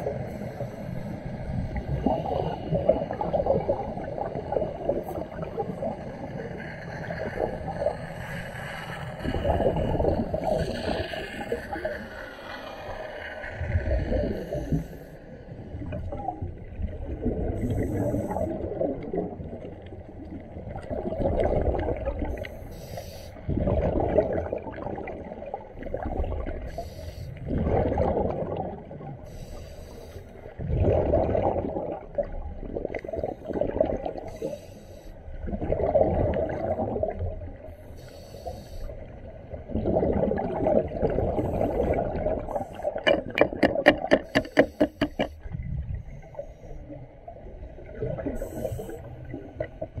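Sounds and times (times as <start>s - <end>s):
exhaled air bubbling: 0.0s - 50.0s
regulator inhalation hiss: 22.6s - 23.4s, 26.7s - 27.4s, 29.3s - 30.4s, 34.3s - 35.2s, 37.8s - 39.0s, 48.4s - 49.0s.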